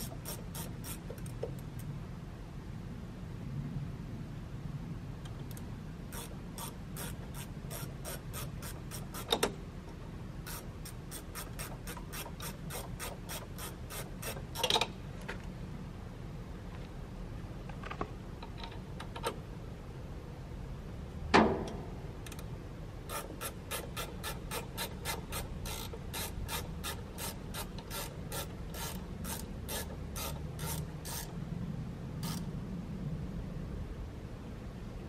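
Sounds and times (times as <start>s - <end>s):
quick metallic clicks: 23.1s - 31.4s.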